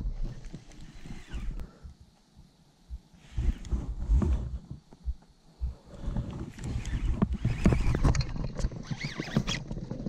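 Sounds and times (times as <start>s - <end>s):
short high squeaks: 6.6s - 9.7s.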